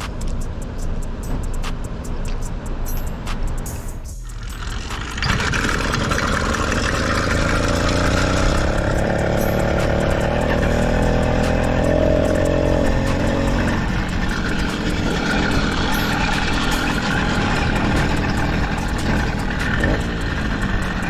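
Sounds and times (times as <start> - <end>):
small gas engine running: 4.2 - 21.0.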